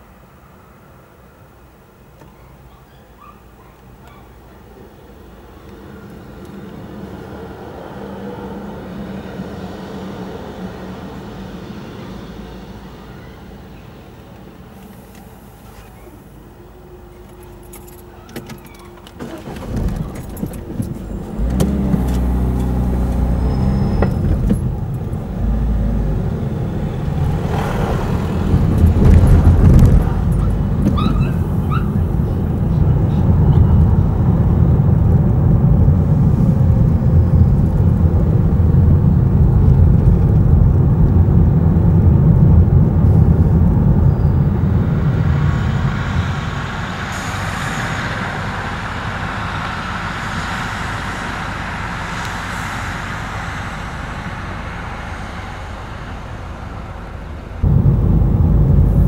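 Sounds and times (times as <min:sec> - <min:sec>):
tyres rumbling on road: 0:03.9 - 0:59.0
car engine pulling away: 0:04.4 - 0:59.0.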